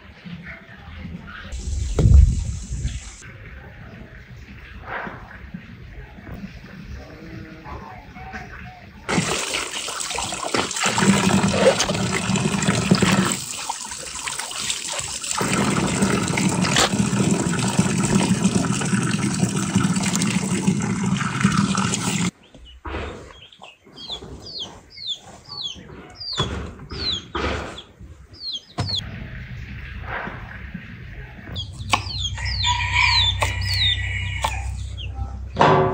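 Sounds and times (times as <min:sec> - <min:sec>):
water running and splashing: 0:09.1 - 0:22.3
bird chirping: 0:22.4 - 0:29.1, 0:31.1 - 0:35.4.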